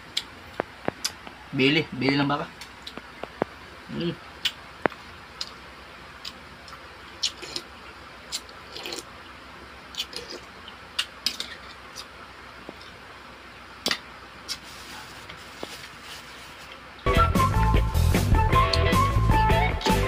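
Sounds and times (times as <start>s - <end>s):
wet eating sounds: 8.3s - 9.2s, 9.9s - 13.0s.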